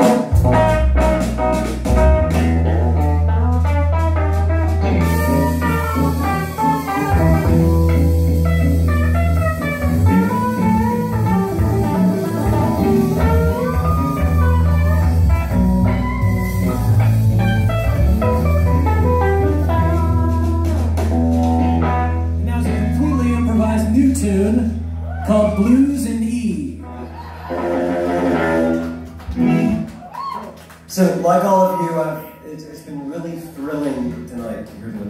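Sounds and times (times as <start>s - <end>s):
electric guitar bending pitch: 0.0s - 23.7s, 26.8s - 30.0s
loud bass: 0.0s - 26.8s
rock band playing: 0.0s - 35.0s.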